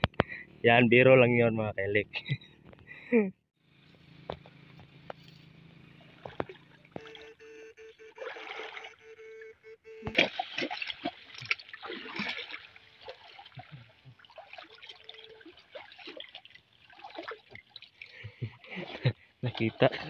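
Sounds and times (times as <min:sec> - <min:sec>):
person wading through water: 0:05.9 - 0:20.0.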